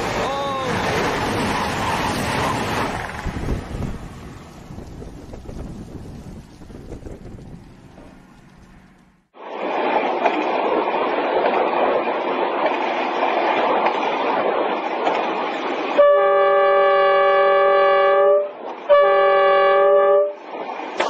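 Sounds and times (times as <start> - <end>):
train running on track: 0.0 - 21.0
train horn blasts: 16.0 - 20.4.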